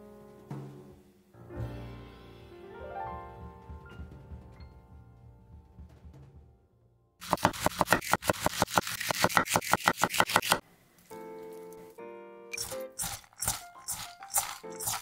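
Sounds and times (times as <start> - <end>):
knife chopping on cutting board: 7.2 - 10.6.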